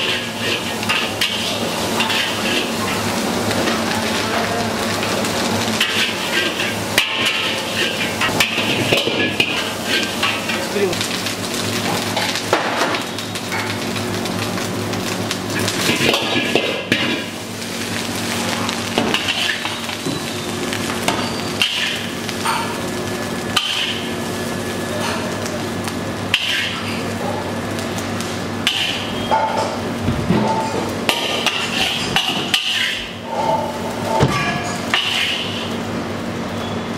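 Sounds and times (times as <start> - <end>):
metal spatula scraping a wok: 0.0 - 3.0, 5.8 - 10.6, 26.3 - 27.0, 31.5 - 35.7
rice sizzling in a wok: 0.0 - 36.9.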